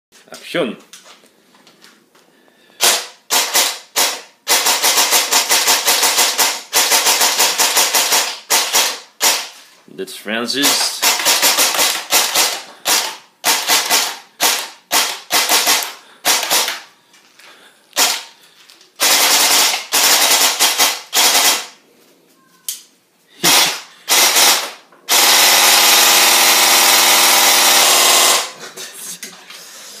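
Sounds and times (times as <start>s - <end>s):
airsoft gun firing: 2.8s - 9.5s, 10.6s - 16.9s, 18.0s - 18.3s, 19.0s - 21.8s, 23.4s - 28.6s.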